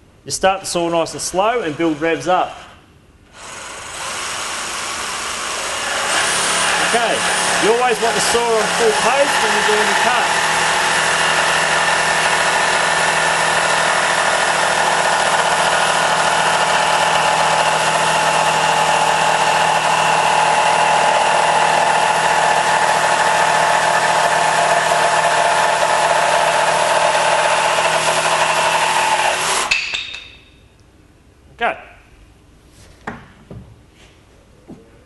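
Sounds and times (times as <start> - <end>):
jigsaw cutting plywood: 3.3 - 29.7.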